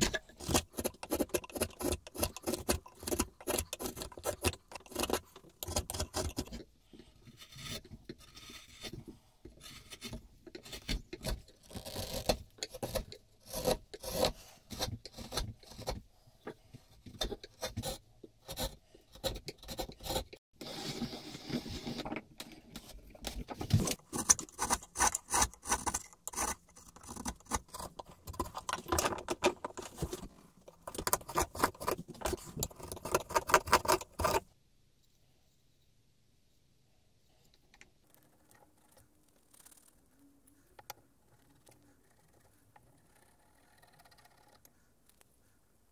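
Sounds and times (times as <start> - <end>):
chisel scraping wood: 0.0 - 6.7, 7.3 - 9.0, 9.6 - 16.0, 23.7 - 34.5.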